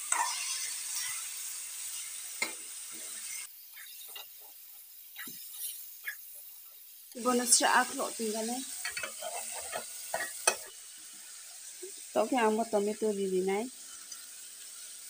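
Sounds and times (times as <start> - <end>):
metal spoon scraping a pan: 0.0 - 1.3, 1.9 - 6.4, 8.7 - 10.8
chicken sizzling in a pan: 0.0 - 15.0
spoon clinking on pan: 8.8 - 10.7.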